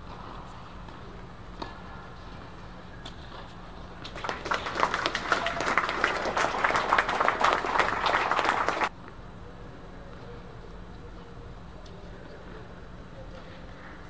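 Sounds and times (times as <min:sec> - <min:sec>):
spectators clapping: 0:04.0 - 0:08.9.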